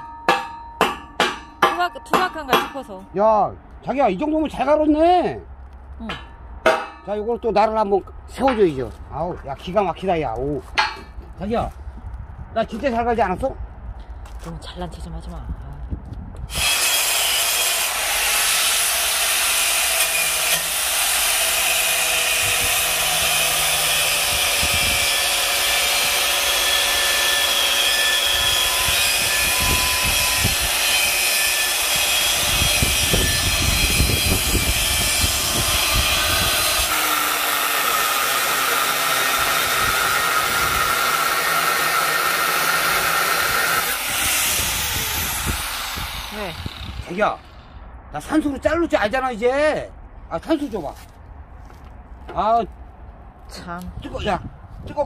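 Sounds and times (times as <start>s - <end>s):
angle grinder grinding steel: 16.5s - 47.2s.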